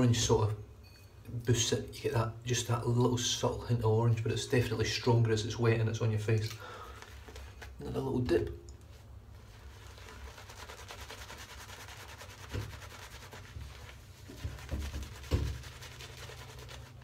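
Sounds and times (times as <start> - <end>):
shaving brush rubbing lather: 9.4 - 17.0.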